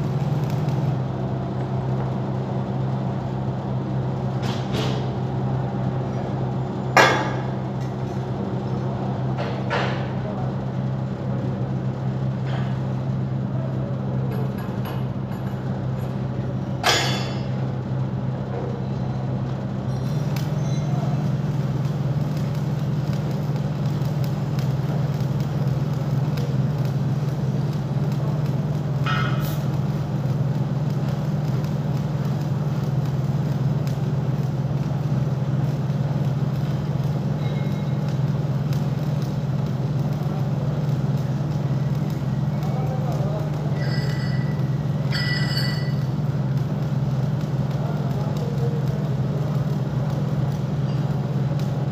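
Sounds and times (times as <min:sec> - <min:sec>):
workshop machinery hum: 0:00.0 - 0:51.9
machinery clatter: 0:19.8 - 0:51.9.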